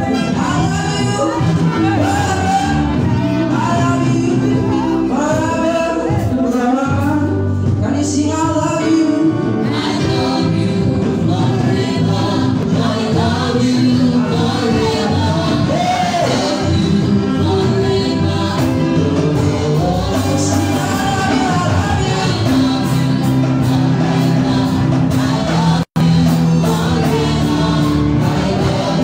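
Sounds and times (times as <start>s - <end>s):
gospel singers: 0.0s - 29.0s
keyboard accompaniment: 0.0s - 29.0s.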